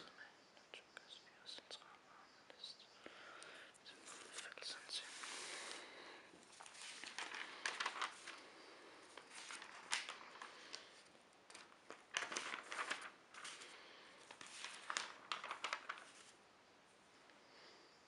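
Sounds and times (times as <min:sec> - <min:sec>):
newspaper pages rustling: 0:06.4 - 0:16.4.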